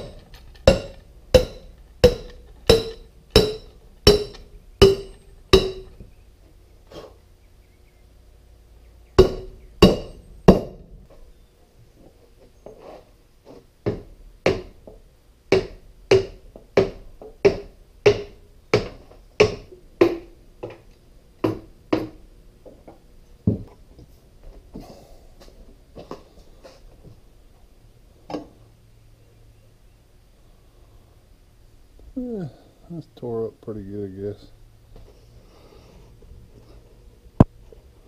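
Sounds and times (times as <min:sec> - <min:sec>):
hammer striking metal cylinder: 0:00.0 - 0:06.0, 0:09.2 - 0:10.8.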